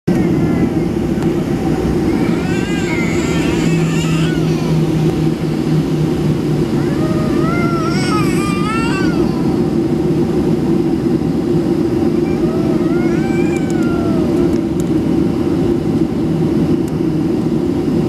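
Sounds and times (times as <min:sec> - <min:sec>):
jet engines idling rumble: 0:00.1 - 0:18.0
high child-like voice: 0:12.1 - 0:14.6.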